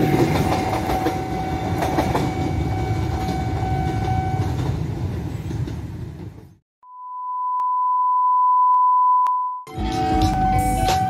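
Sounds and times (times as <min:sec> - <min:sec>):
train rumble: 0:00.0 - 0:06.6
electronic beep tone: 0:06.8 - 0:11.0.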